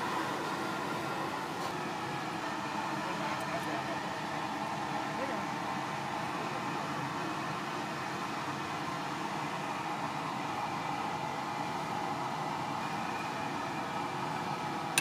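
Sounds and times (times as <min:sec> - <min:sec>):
stockpot boiling: 0:03.9 - 0:15.0.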